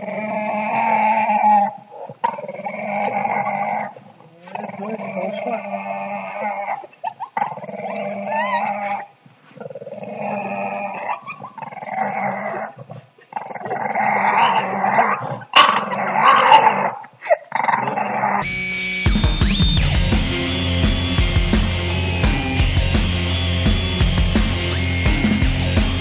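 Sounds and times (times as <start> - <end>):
dog growling and grumbling: 0.0 - 18.4
music: 18.4 - 26.0.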